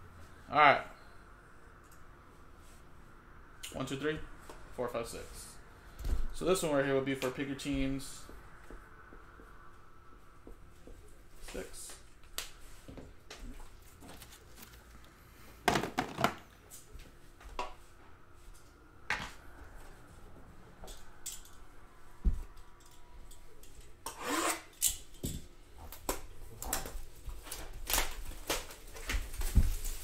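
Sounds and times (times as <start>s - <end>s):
plastic wrap rustling: 13.6s - 15.1s, 26.5s - 30.0s.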